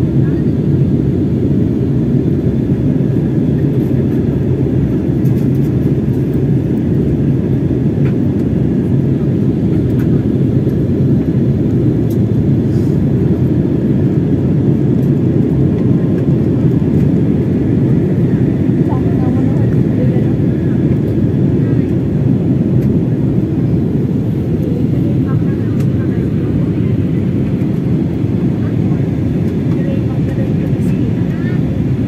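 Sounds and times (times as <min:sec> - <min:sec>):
airplane cabin drone: 0:00.0 - 0:32.0.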